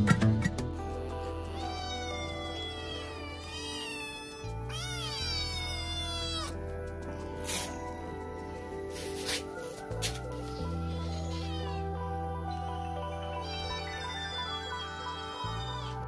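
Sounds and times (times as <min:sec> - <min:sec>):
soft background music: 0:00.0 - 0:16.0
kittens meowing: 0:01.1 - 0:06.6, 0:10.1 - 0:12.2, 0:13.2 - 0:16.0.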